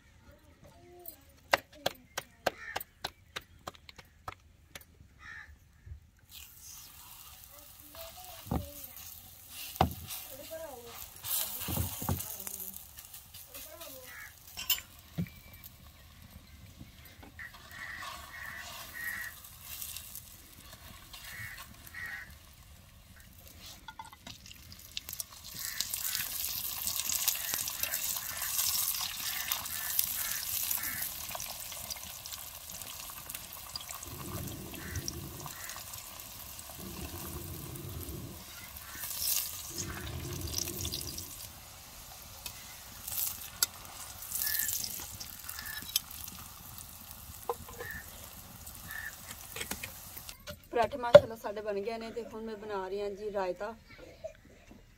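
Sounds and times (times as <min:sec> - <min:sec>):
bread sizzling in oil: 0:06.2 - 0:50.4
low rumbles: 0:36.6 - 0:38.9.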